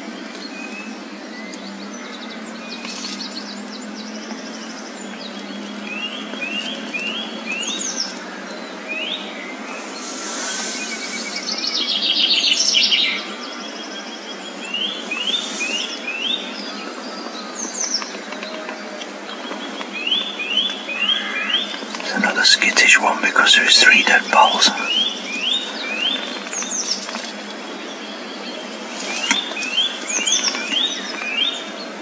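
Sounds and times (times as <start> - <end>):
songbirds chirping: 0.0 - 32.0.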